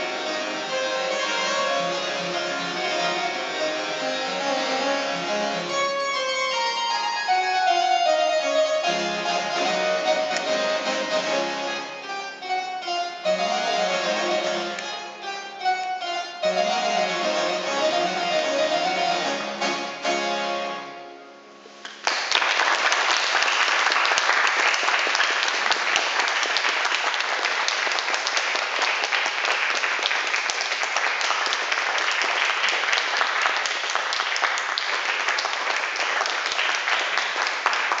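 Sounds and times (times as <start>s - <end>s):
harpsichord chord ringing: 0.0s - 21.8s
audience applause: 21.8s - 38.0s.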